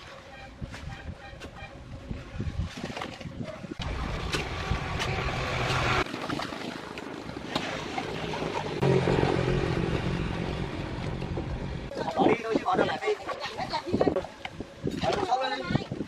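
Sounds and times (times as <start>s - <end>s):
steady low rumble: 7.9s - 12.1s.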